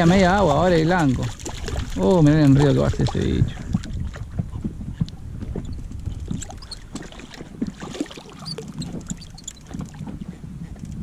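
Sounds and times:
fish splashing: 0.0 - 4.0, 6.2 - 10.0
water lapping against hull: 0.0 - 11.0.

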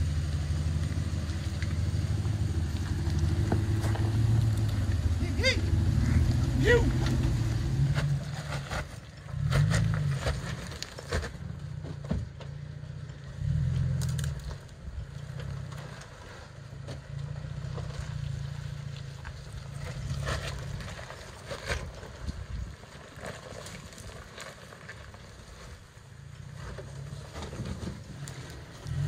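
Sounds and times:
off-road engine revving: 0.0 - 29.0
tyres grinding over rock: 0.5 - 12.7, 13.4 - 29.0.

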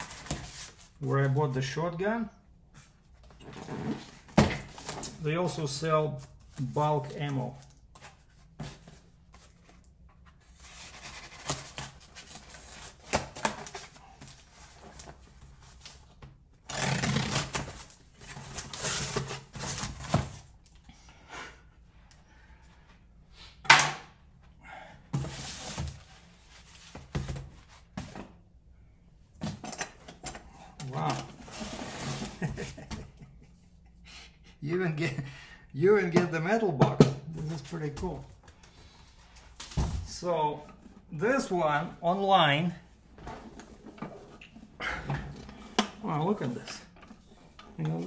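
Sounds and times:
tape and cardboard rustling: 0.0 - 1.4, 2.8 - 5.2, 6.1 - 20.7.

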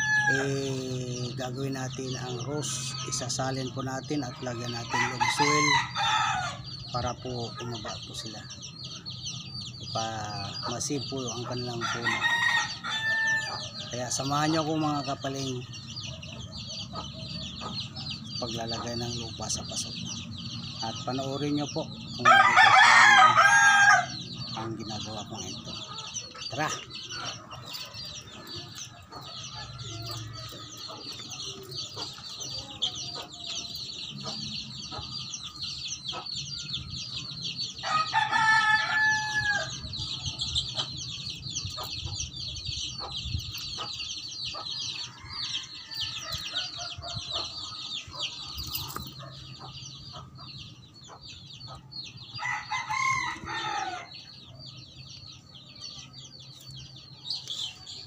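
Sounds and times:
rooster crowing: 0.0 - 0.8, 4.9 - 6.6, 11.8 - 13.9, 22.2 - 24.2, 37.8 - 39.8, 52.4 - 54.1.

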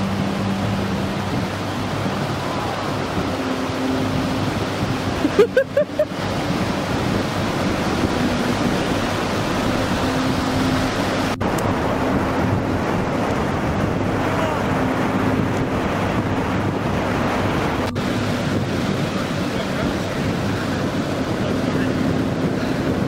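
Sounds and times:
ocean surf breaking: 0.0 - 23.0
short rising cries: 1.9 - 6.0.

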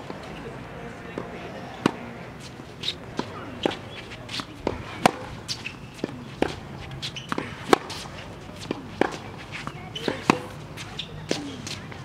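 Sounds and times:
tennis ball off racket: 1.2 - 12.0
shoe squeaks: 2.4 - 11.9.

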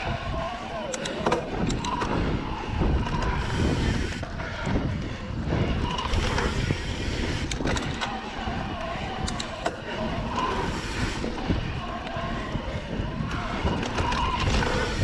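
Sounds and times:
bike clicks and rattles: 0.0 - 15.0
wind noise on microphone: 0.0 - 15.0.

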